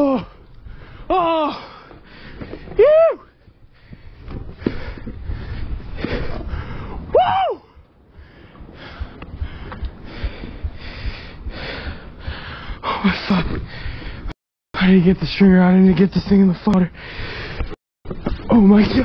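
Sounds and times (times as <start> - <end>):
man crying out: 0.0 - 0.4, 1.1 - 1.7, 2.8 - 3.2, 7.1 - 7.7
man breathing hard: 0.2 - 2.8, 3.7 - 7.1, 8.1 - 14.4, 17.0 - 17.8.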